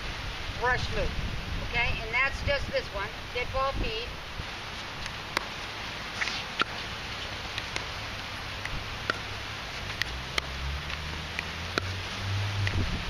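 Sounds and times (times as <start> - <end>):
paddle hitting ball: 5.3 - 7.9, 9.0 - 10.6, 11.4 - 11.9
low engine hum: 5.3 - 13.0.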